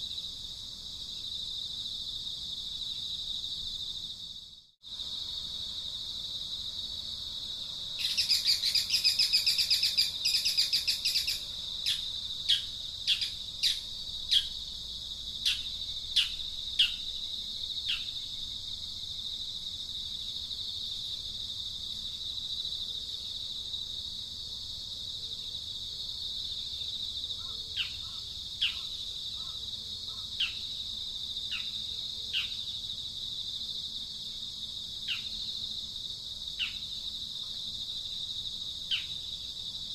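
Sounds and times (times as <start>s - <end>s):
high-pitched insect drone: 7.5s - 19.4s
bird rapid trill: 8.0s - 14.5s.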